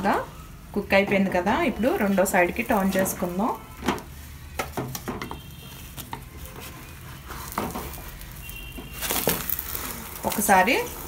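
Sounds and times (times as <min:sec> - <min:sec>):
spatula scraping frying pan: 0:05.4 - 0:09.0.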